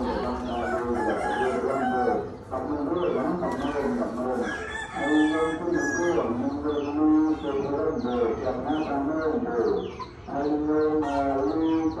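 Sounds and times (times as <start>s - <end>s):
chickens clucking: 0.0s - 12.0s
rooster crowing: 0.2s - 2.3s, 4.4s - 6.2s.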